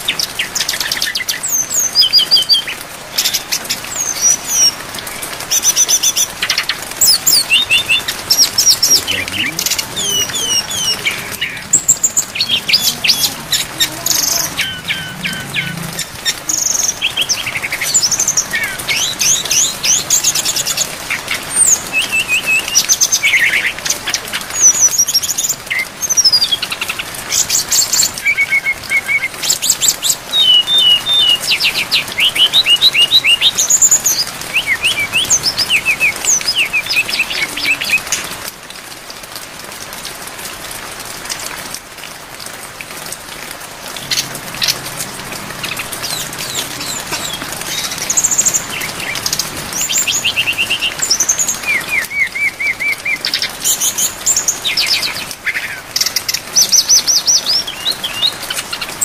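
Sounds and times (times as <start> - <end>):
rain hiss: 0.0 - 59.0
bird singing whistled trills: 7.0 - 9.1, 30.3 - 33.9, 34.5 - 38.0.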